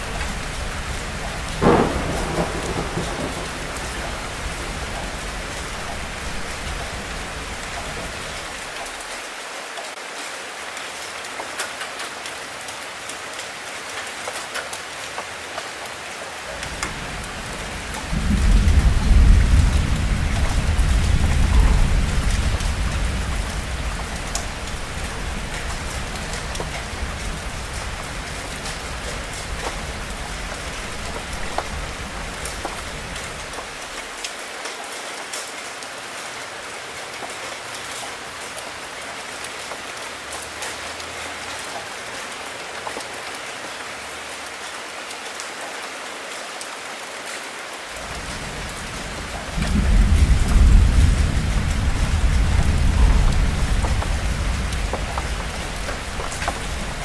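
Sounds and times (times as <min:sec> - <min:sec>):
low roll of thunder: 0:00.0 - 0:08.4, 0:16.6 - 0:33.8, 0:48.0 - 0:57.0
rain splashing on hard surfaces: 0:00.0 - 0:57.0.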